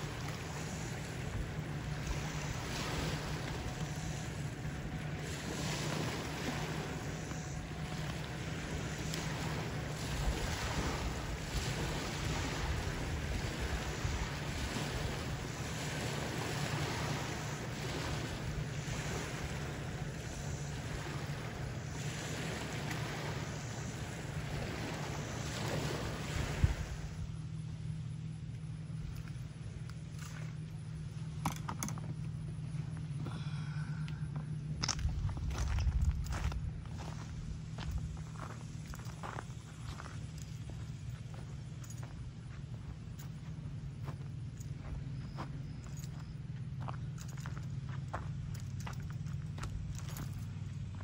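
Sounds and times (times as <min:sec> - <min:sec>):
waves washing onto rocky shore: 0:00.0 - 0:27.0
wind rumbling on microphone: 0:00.0 - 0:27.4, 0:28.7 - 0:51.0.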